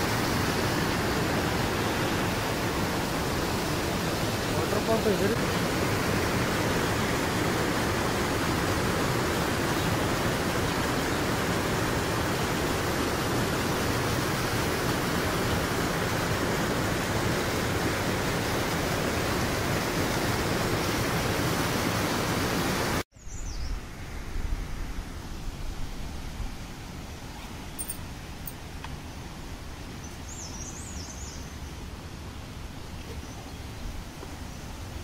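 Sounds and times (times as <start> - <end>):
stream rushing over rocks: 0.0 - 23.0.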